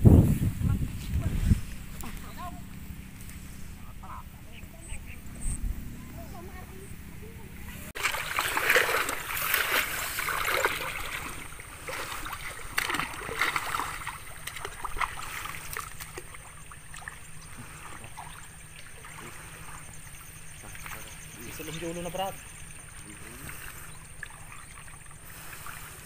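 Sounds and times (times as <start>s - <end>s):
water splashing and sloshing: 7.7s - 26.0s
water trickling: 7.9s - 26.0s.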